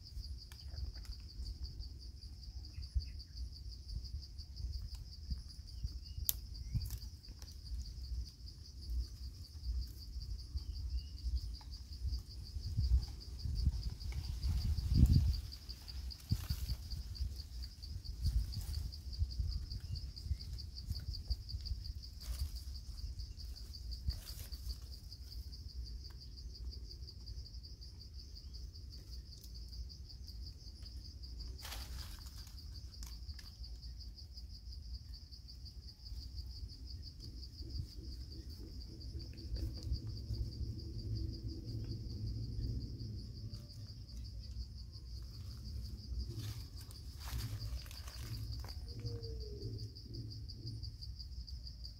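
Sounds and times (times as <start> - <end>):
high-pitched insect chorus: 0.0 - 51.9
low rumble: 37.4 - 51.1.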